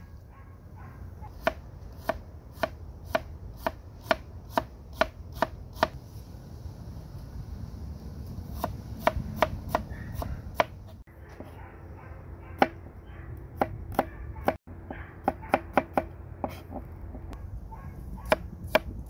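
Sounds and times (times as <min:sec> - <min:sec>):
knife chopping on cutting board: 0:01.4 - 0:06.0, 0:15.2 - 0:16.6.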